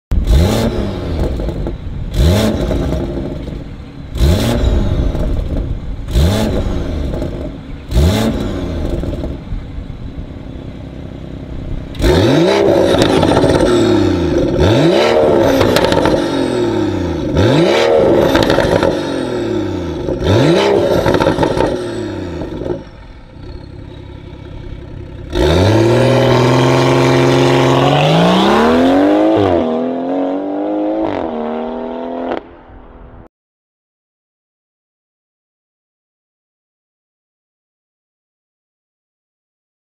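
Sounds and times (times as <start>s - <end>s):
car engine revving: 0.1s - 9.8s, 11.0s - 33.2s
car accelerating away: 11.9s - 32.5s.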